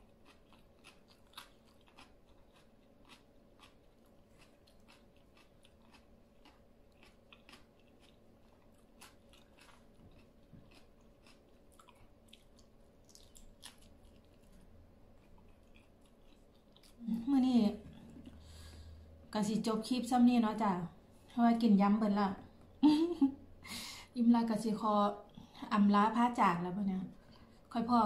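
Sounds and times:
person chewing food: 0.0 - 19.2.

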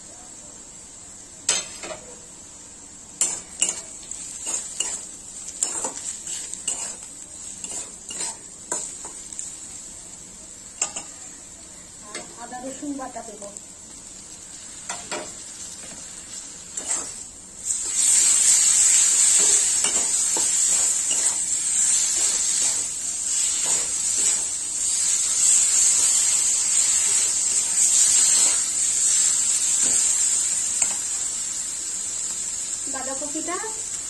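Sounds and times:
vegetables sizzling in hot oil: 0.0 - 34.0
metal spatula scraping pan: 7.6 - 8.9.

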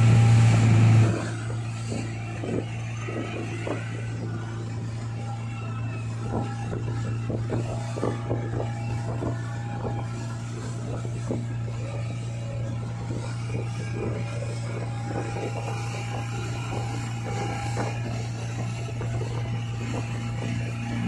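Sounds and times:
motorboat engine humming: 0.0 - 21.0
rushing boat wake: 0.0 - 21.0
water splashes: 0.0 - 21.0.

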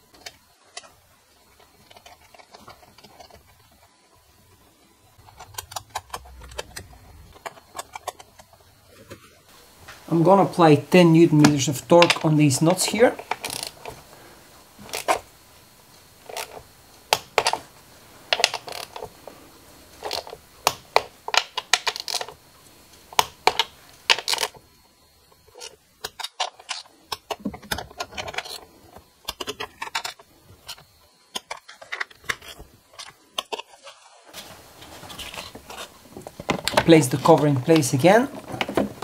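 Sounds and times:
torque wrench ratcheting: 13.3 - 13.8.

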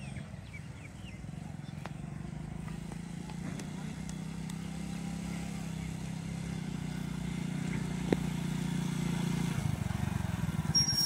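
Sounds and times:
small motorcycle engine running: 0.0 - 11.0
brake squeal: 10.5 - 11.0.

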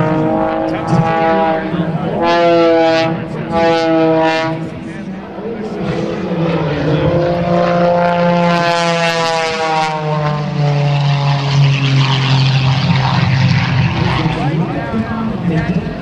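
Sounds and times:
propeller plane passing: 0.0 - 16.0.

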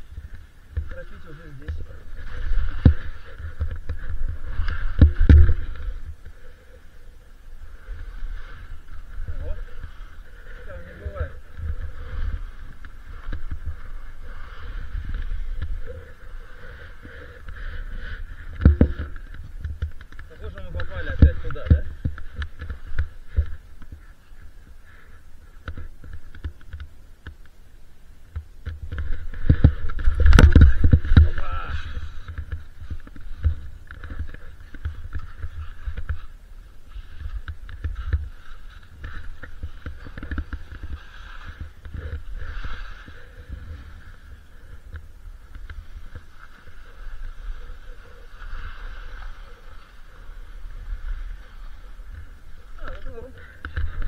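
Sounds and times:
skis sliding through snow: 0.0 - 27.4, 28.3 - 54.0
wind on microphone: 0.0 - 27.4, 28.2 - 54.0
wind buffeting microphone: 28.3 - 54.0.

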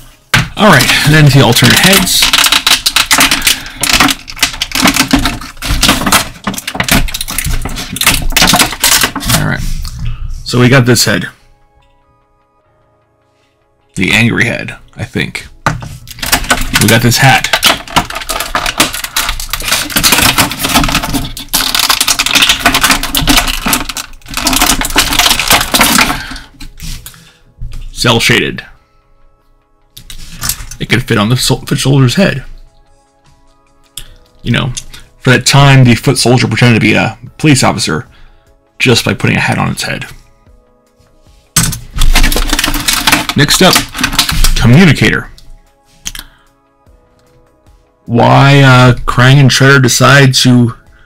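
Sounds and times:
plastic packaging clicking and crackling: 0.4 - 9.5, 15.7 - 27.2, 30.0 - 31.0, 41.6 - 45.5.

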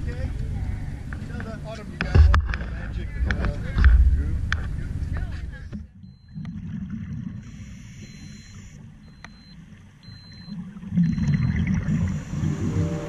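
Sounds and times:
muffled underwater rumble: 0.0 - 13.0
faint high-pitched tone: 11.1 - 13.0.

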